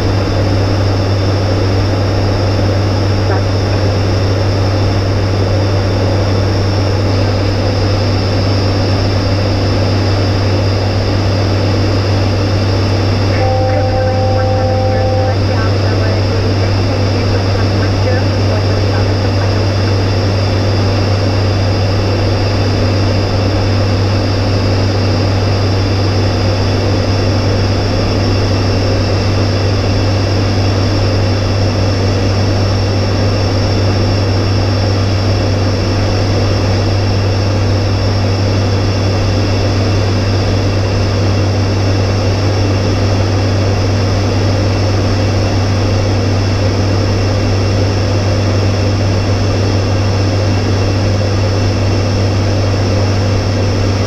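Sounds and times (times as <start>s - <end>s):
turboprop engines droning: 0.0s - 54.0s
faint high whines: 10.4s - 34.3s.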